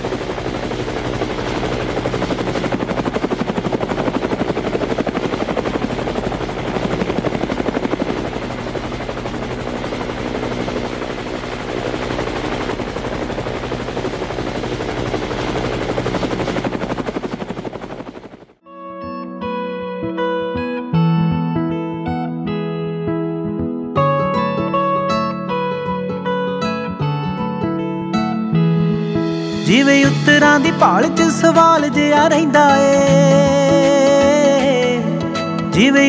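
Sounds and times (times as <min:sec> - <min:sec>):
helicopter rotor chopping: 0:00.0 - 0:18.6, 0:29.4 - 0:36.0
plucked guitar music: 0:18.6 - 0:36.0.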